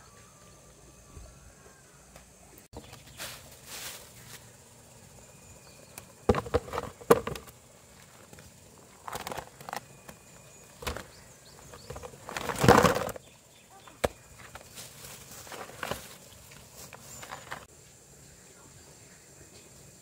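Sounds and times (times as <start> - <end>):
rustling: 2.8 - 4.6, 6.3 - 13.2, 13.9 - 17.7.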